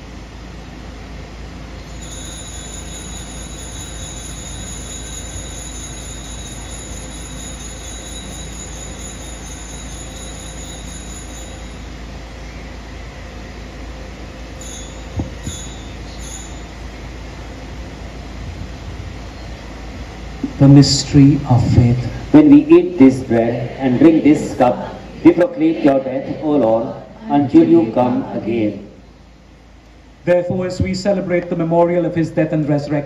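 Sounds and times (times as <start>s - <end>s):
altar bells ringing: 1.8s - 12.6s, 14.4s - 17.6s.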